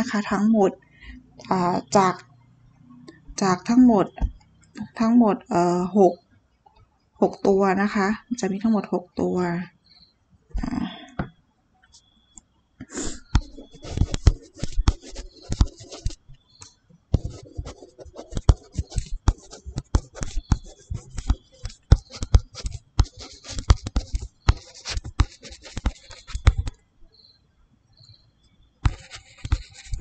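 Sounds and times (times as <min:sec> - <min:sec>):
stylus tapping and scratching screen: 0:01.4 - 0:02.3, 0:03.0 - 0:05.5, 0:12.9 - 0:26.8, 0:28.8 - 0:30.0.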